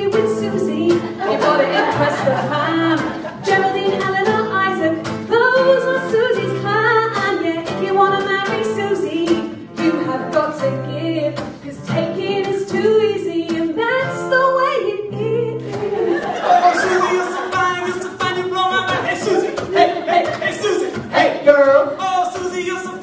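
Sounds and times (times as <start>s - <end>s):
woman singing into a microphone: 0.0s - 16.3s
backing track with beat and bass: 15.8s - 23.0s.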